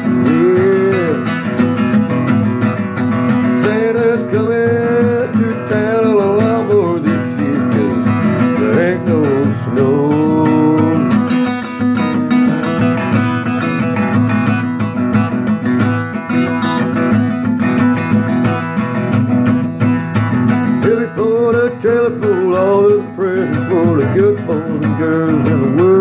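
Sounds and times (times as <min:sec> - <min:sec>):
wordless singing voice: 0:00.0 - 0:01.5, 0:03.3 - 0:11.5, 0:12.1 - 0:13.4, 0:20.7 - 0:26.0
acoustic guitar strumming: 0:00.0 - 0:26.0.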